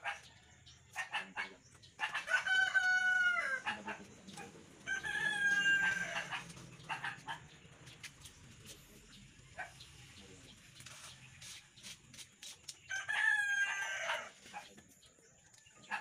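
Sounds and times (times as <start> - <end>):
rooster crowing: 2.2 - 3.8, 4.9 - 6.4, 12.9 - 14.3.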